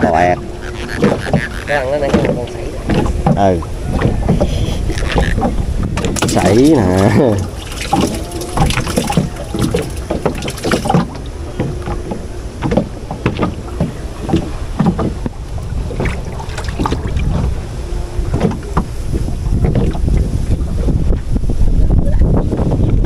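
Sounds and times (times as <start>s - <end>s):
wind rumble on microphone: 0.0s - 23.0s
small knocks: 0.9s - 17.0s.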